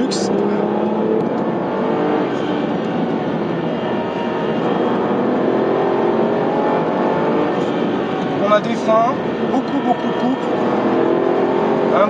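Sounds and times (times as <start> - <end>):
car engine accelerating: 0.0 - 12.0
road and tyre noise: 0.0 - 12.0.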